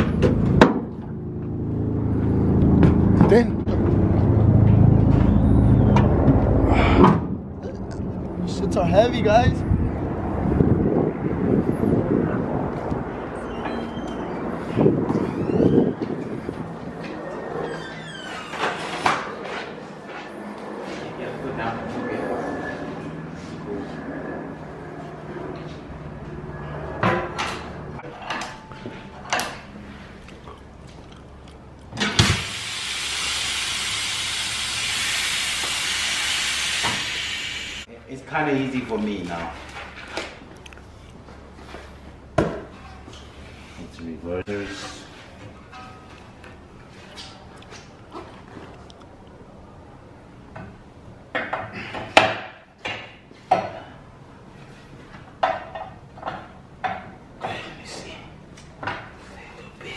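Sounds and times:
compressed air hissing: 0:32.2 - 0:37.9.

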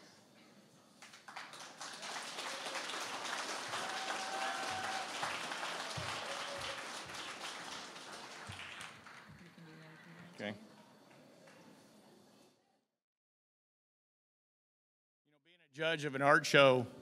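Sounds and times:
audience applauding: 0:01.0 - 0:10.5.

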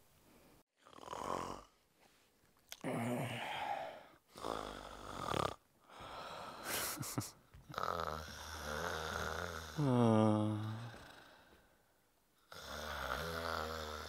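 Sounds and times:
man snoring loudly: 0:00.8 - 0:01.8, 0:02.8 - 0:06.6, 0:07.7 - 0:11.4, 0:12.5 - 0:14.0.

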